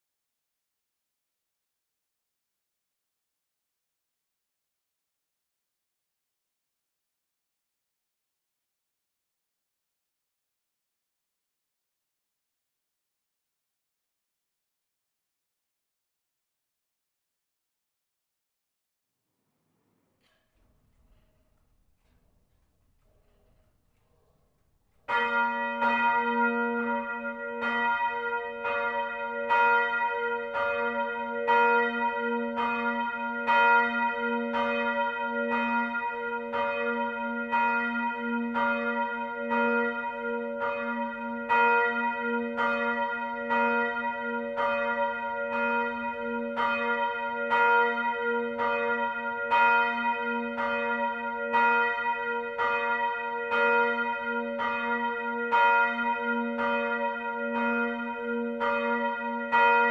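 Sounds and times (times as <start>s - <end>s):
church bells ringing: 20.2s - 59.9s.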